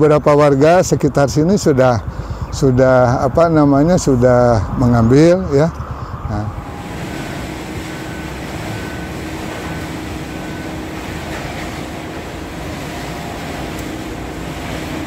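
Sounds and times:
shredding machinery humming: 0:05.1 - 0:15.0.

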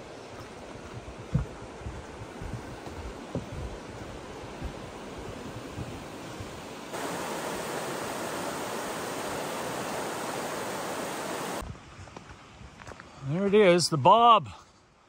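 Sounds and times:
rushing water: 0:00.0 - 0:11.6.

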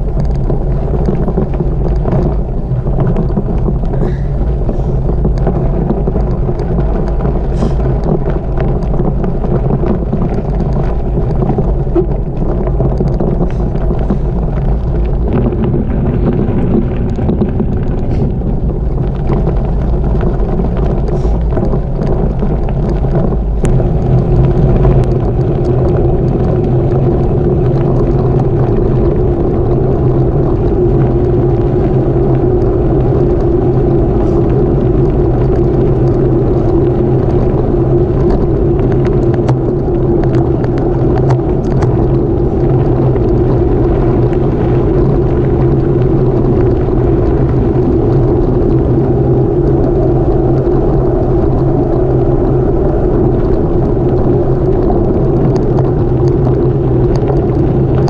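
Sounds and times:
bike frame rattling: 0:00.0 - 0:29.9
bike tyres rumbling on gravel: 0:00.0 - 0:58.0
gravel ticking: 0:00.0 - 0:58.0.

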